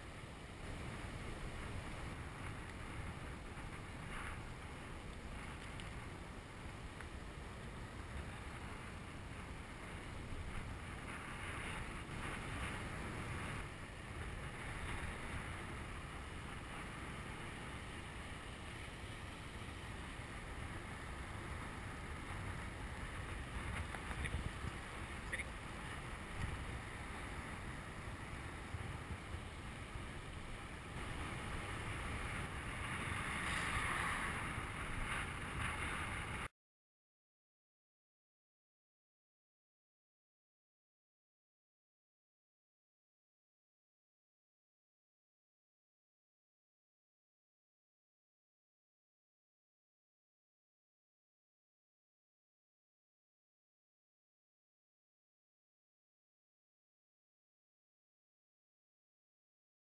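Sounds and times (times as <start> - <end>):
wind buffeting microphone: 0.0 - 36.5.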